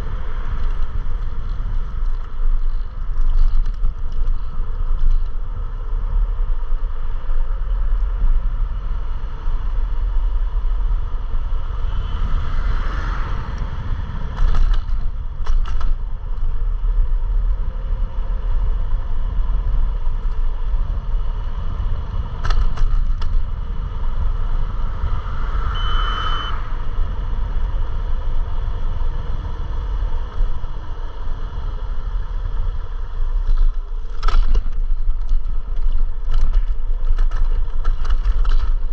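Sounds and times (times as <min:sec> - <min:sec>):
road rumble: 0:00.0 - 0:38.9
brief high beep: 0:25.7 - 0:26.7.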